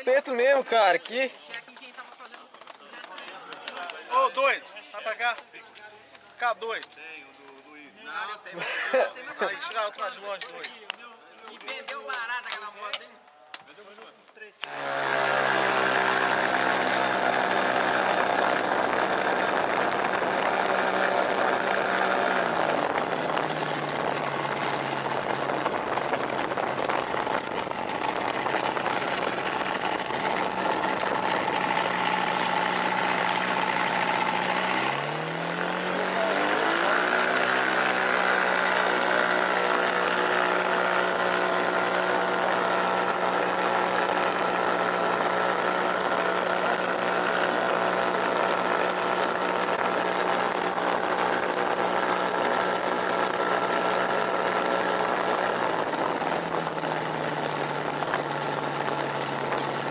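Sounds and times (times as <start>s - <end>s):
light aircraft engine running: 14.7s - 59.9s.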